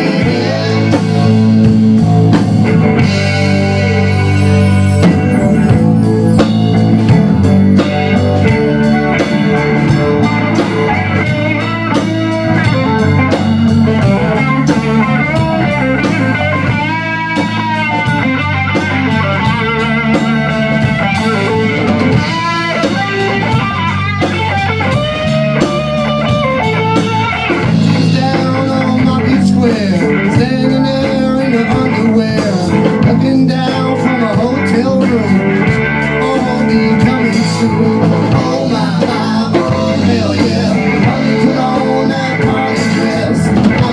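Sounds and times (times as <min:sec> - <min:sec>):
man singing: 0:00.0 - 0:01.8, 0:27.7 - 0:43.9
bass guitar: 0:00.0 - 0:43.9
drum kit: 0:00.0 - 0:43.9
electric guitar blues lead: 0:00.0 - 0:43.9.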